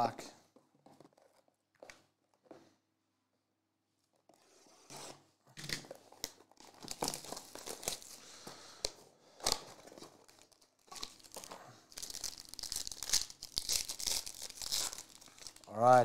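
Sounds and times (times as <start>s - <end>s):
plastic shrink-wrap crinkling: 5.6s - 8.2s, 9.4s - 16.0s
foil pack crinkling: 6.1s - 8.4s, 9.4s - 15.8s.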